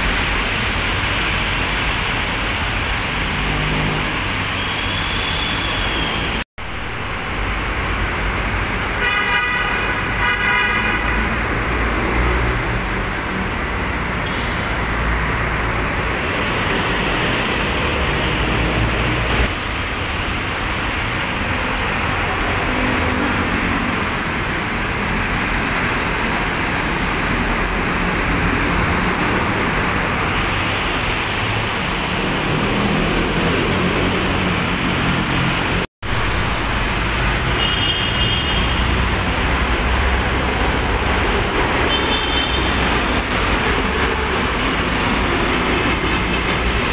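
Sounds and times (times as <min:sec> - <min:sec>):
road traffic passing: 0:00.0 - 0:46.9
vehicle horn honking: 0:09.0 - 0:11.3, 0:14.2 - 0:14.7, 0:37.6 - 0:38.9, 0:41.9 - 0:42.8
motorcycles passing: 0:31.3 - 0:35.9.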